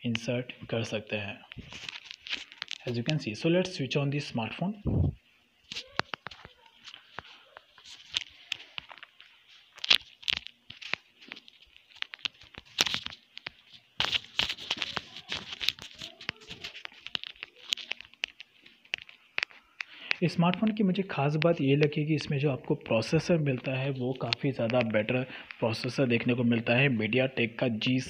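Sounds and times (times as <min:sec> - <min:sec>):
hands handling a smartphone: 0:01.5 - 0:03.2, 0:05.7 - 0:21.9.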